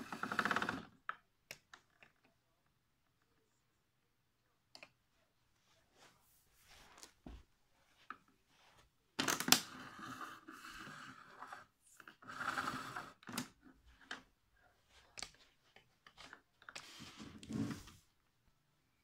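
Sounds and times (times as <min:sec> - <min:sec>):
rustling and scraping: 0:05.6 - 0:09.0, 0:09.6 - 0:18.2.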